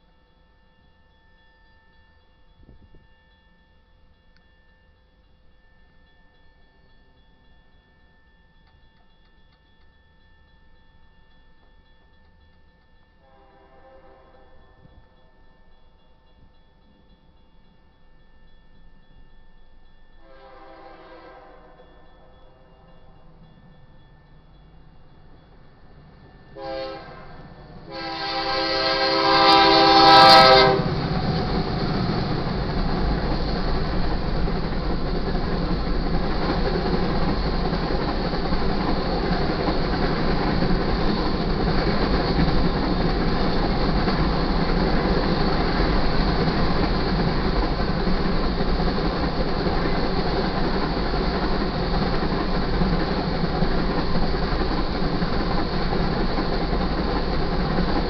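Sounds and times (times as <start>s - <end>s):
train horn blasts: 13.2s - 14.8s, 20.2s - 21.8s, 26.6s - 31.0s
train cars rumbling and clacking: 20.5s - 58.0s.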